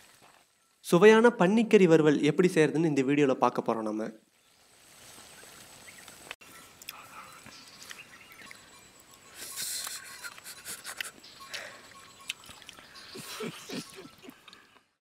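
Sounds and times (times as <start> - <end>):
man chewing food: 6.4 - 15.0
wet mouth clicks: 9.4 - 11.2, 12.2 - 12.8.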